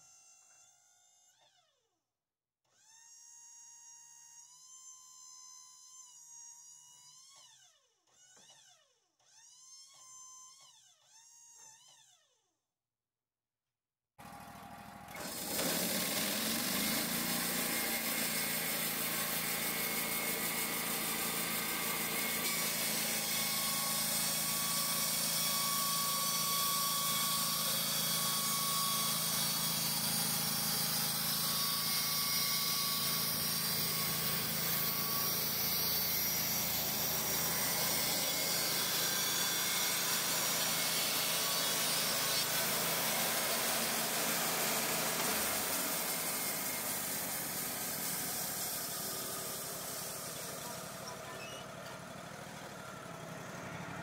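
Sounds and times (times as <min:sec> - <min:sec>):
band sawmill engine running: 0:14.2 - 0:54.0.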